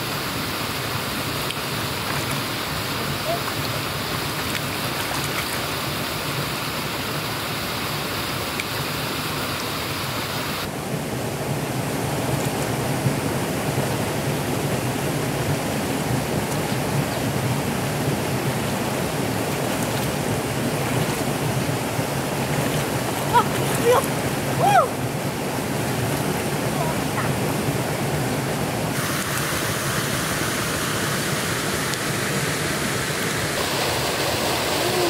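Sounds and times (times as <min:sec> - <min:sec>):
flowing river water: 0:00.0 - 0:35.0.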